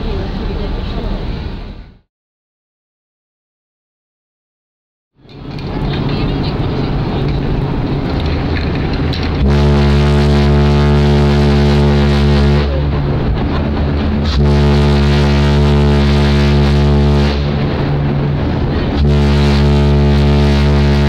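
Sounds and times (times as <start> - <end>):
ship's horn deep blasts: 5.4 - 21.0.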